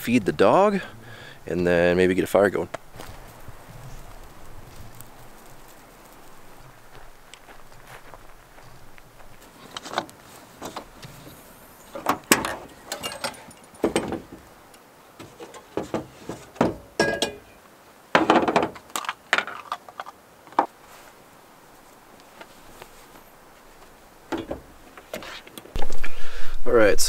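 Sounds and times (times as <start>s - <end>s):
cookware clunks and clinks: 17.0s - 17.6s.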